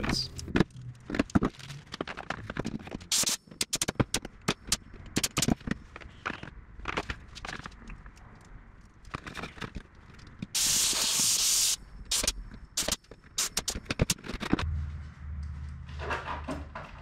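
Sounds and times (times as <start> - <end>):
compressed air hiss: 10.6 - 13.8
low steady hum: 14.6 - 16.7.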